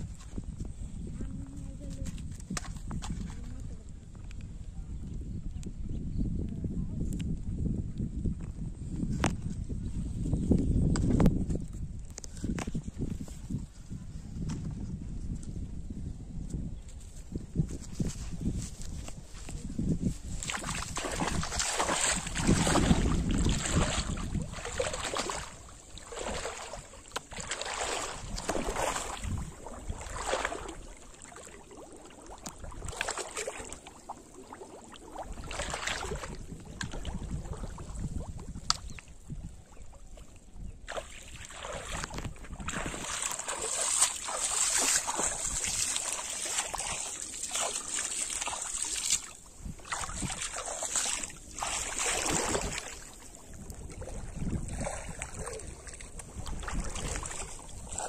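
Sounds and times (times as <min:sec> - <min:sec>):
person wading through water: 0:19.2 - 0:58.0
objects splashing onto water: 0:20.4 - 0:31.6, 0:41.9 - 0:53.1.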